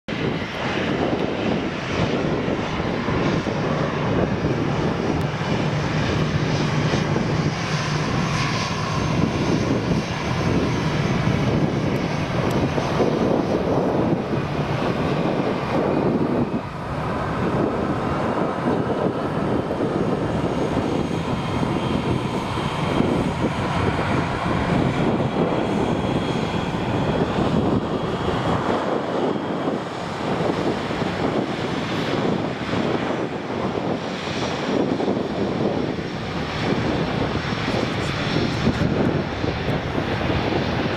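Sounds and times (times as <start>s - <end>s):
jet engines at takeoff: 0.0s - 40.9s
taxiing jet engine: 0.1s - 40.9s.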